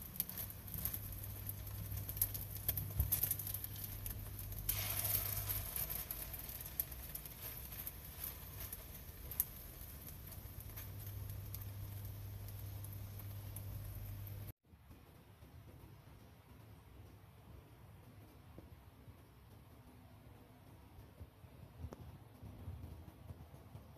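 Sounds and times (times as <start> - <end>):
food frying in oil: 0.0 - 14.6.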